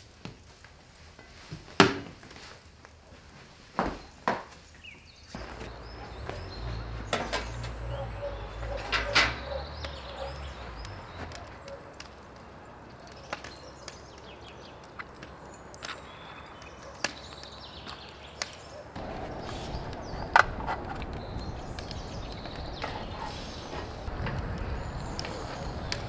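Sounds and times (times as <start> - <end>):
low rumble: 19.0 - 26.0.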